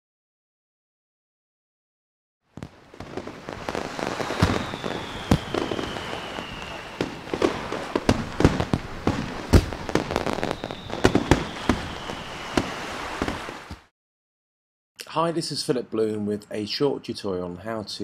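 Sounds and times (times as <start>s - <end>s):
fireworks bangs: 2.6s - 13.9s
whistle gliding down in pitch: 4.1s - 7.1s, 10.2s - 12.8s.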